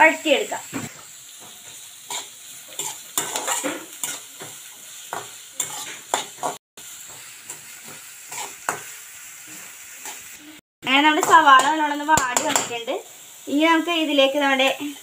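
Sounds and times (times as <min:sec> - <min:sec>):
onions sizzling in oil: 0:00.0 - 0:15.0
metal spatula scraping pan: 0:02.0 - 0:06.6, 0:07.5 - 0:08.9.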